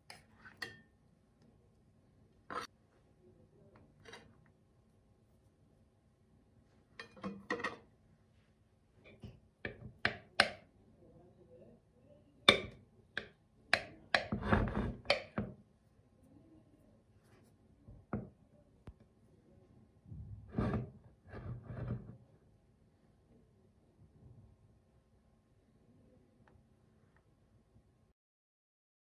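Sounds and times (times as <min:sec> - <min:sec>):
knife clinking on metal tray: 0:07.0 - 0:07.8.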